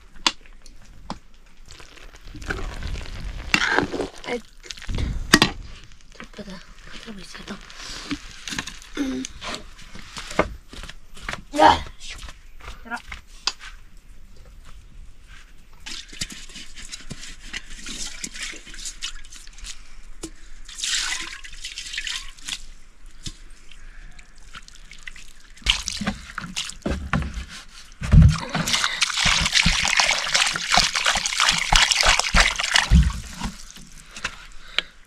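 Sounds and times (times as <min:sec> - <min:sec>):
water trickling and splashing: 0:20.7 - 0:27.0, 0:27.7 - 0:34.2.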